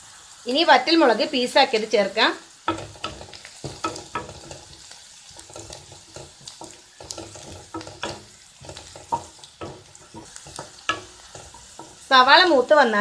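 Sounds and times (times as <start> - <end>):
onions sizzling in a pan: 0.0 - 13.0
spatula scraping a pan: 2.7 - 12.2.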